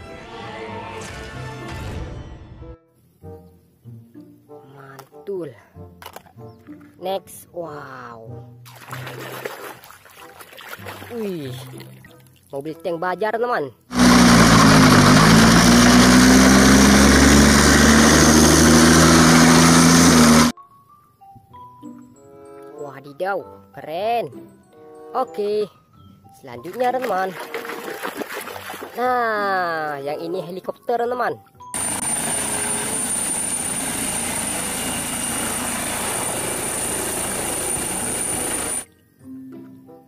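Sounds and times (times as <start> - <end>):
helicopter rotor and turbine noise: 13.9 - 20.5, 31.8 - 38.9
tracked vehicle engine running: 13.9 - 20.5, 31.8 - 38.8
high steady whine: 31.8 - 38.8.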